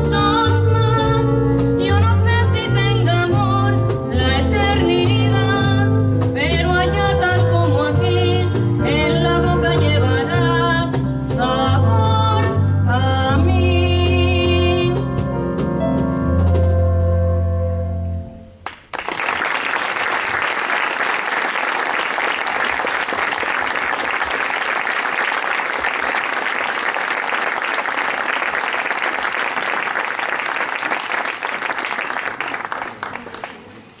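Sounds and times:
audience applause: 18.6 - 34.0.

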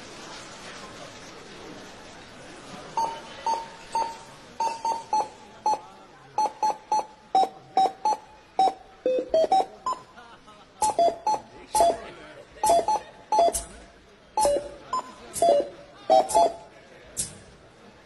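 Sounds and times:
barcode scanner beeps playing a tune: 3.0 - 5.8, 6.4 - 10.1, 10.8 - 12.0, 12.6 - 13.7, 14.4 - 16.7.

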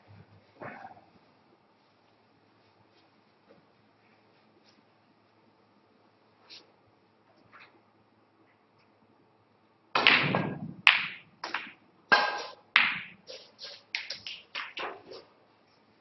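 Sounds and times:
cue striking ball: 10.0 - 13.2
snooker balls clicking: 10.0 - 15.3.

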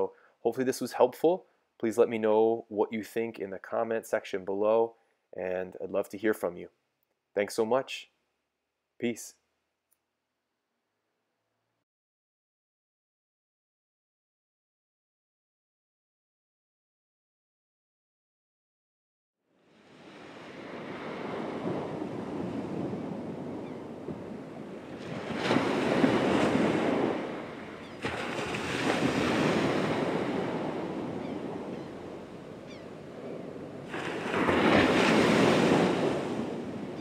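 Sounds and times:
waves breaking on beach: 19.7 - 37.0.

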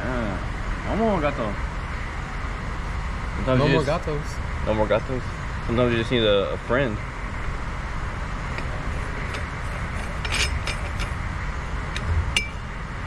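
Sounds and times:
low background rumble: 0.0 - 13.0
light metallic clicks and clinks: 8.5 - 11.2.

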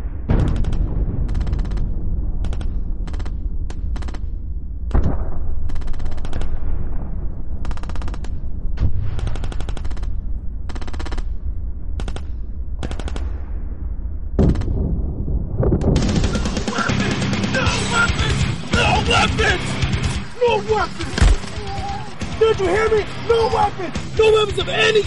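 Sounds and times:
steady low rumble: 0.0 - 18.8
heavy bangs: 0.0 - 25.0
machine-gun fire bursts: 0.3 - 4.2, 5.0 - 6.6, 7.6 - 11.3, 12.0 - 13.3, 15.9 - 17.3.

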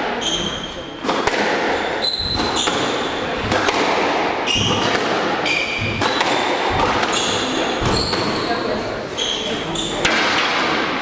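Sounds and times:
shoes squeaking on floor: 0.1 - 1.0, 1.7 - 3.6, 4.4 - 10.1
squash ball cracking: 1.0 - 8.5, 10.0 - 11.0.

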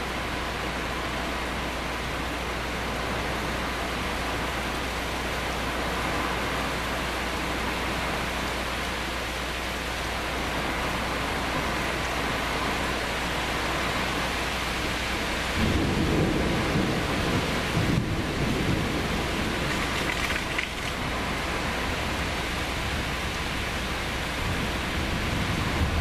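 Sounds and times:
steady rain falling: 0.0 - 26.0
thunder rumbling: 15.5 - 26.0.

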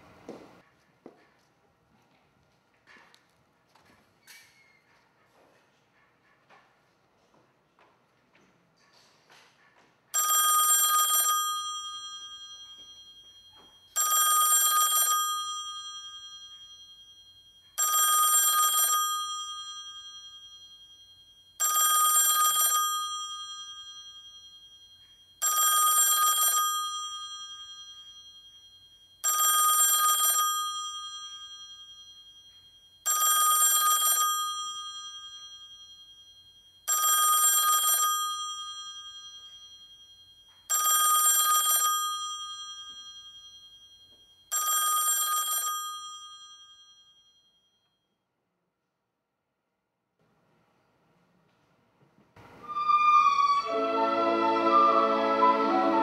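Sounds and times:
bell ringing: 10.2 - 36.2.

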